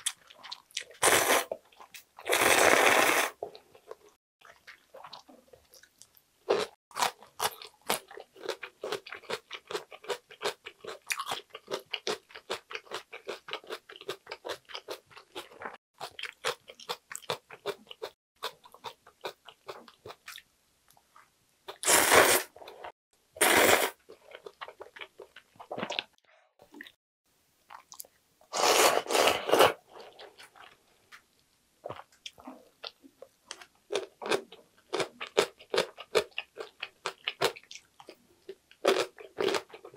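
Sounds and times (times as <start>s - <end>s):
slurping noodles: 1.0s - 1.5s, 2.2s - 3.4s, 21.7s - 24.0s, 28.5s - 30.2s
crunching of chewed radish: 5.7s - 20.4s.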